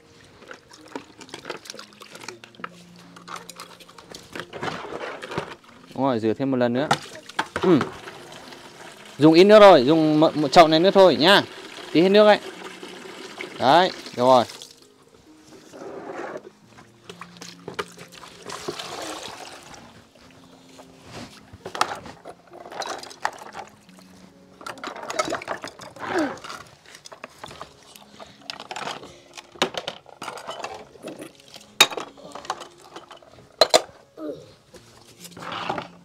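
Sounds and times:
water splashing and pouring: 0.2 - 5.6, 6.9 - 14.8, 17.1 - 20.1, 24.7 - 29.0
bowls clinking together: 29.7 - 34.0.

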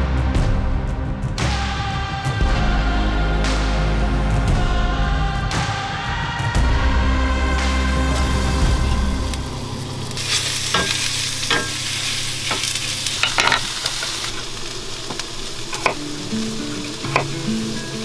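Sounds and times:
onions sizzling in a pan: 7.8 - 18.0
utensil tapping: 12.5 - 18.0.

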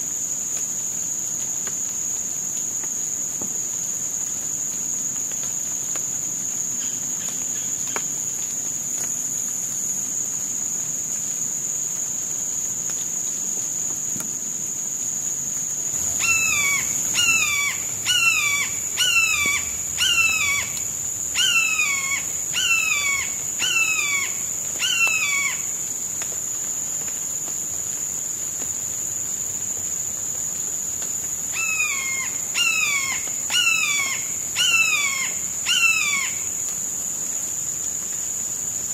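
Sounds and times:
high-pitched insect drone: 15.9 - 25.7.

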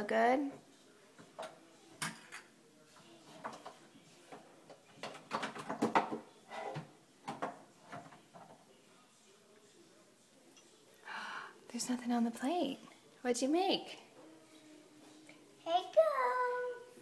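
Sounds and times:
plastic toy doors opening and shutting: 5.0 - 8.2.

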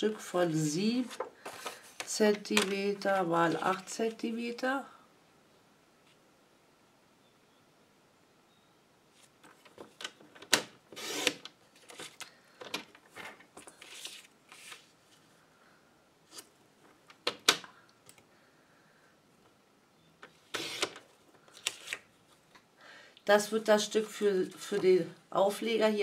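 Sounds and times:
blade cutting paper: 11.0 - 11.5
paper scraping: 13.6 - 14.9.

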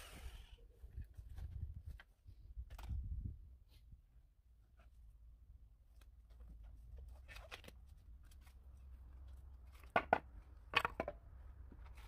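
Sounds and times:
wood pieces knocking together: 9.7 - 11.9.

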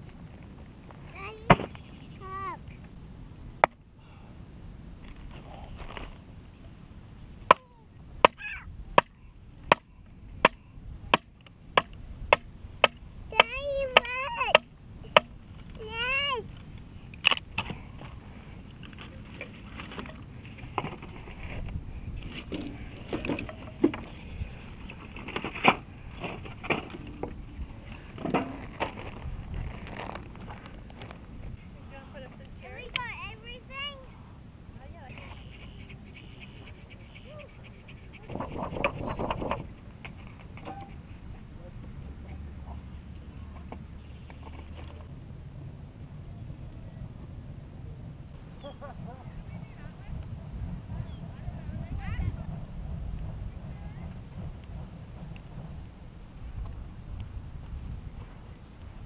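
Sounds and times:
axe chopping firewood log: 9.7 - 15.4
firewood knocking and clattering: 18.9 - 29.2
kindling and paper rustling: 27.9 - 31.2.

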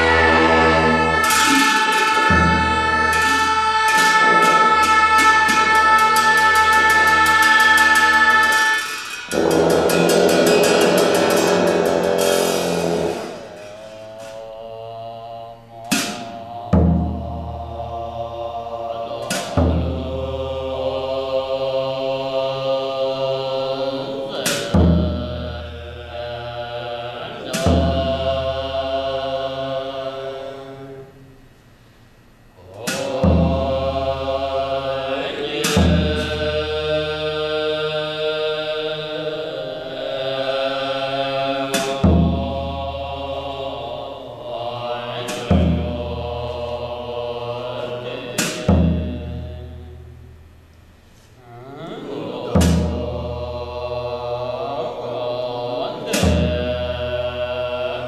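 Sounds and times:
cymbal crash: 0.0 - 14.4
rapid drum strokes: 0.0 - 14.6, 15.8 - 21.8, 22.9 - 29.7, 32.7 - 58.0
long horns sustained tones: 0.0 - 16.0.

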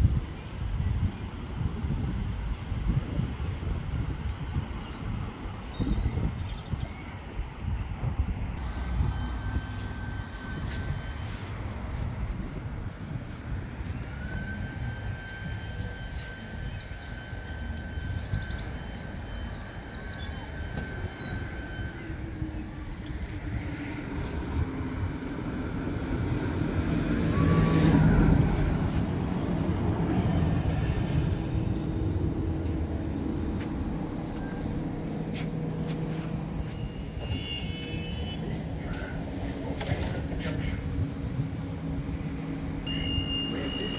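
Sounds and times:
tram rolling and motor hum: 0.0 - 43.9
birds chirping: 14.2 - 39.8
brief high beeping: 26.7 - 38.5, 42.8 - 43.9.

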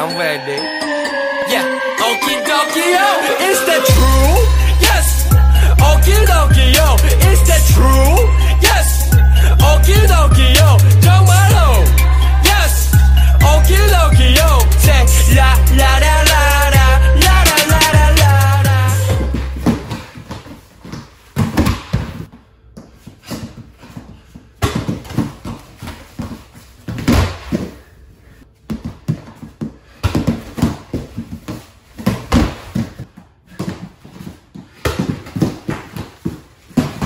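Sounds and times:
feet shuffling on foam mat: 19.2 - 27.9, 28.6 - 37.0.

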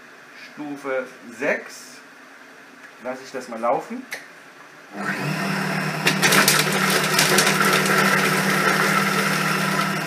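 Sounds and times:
food processor motor running: 4.9 - 10.0.

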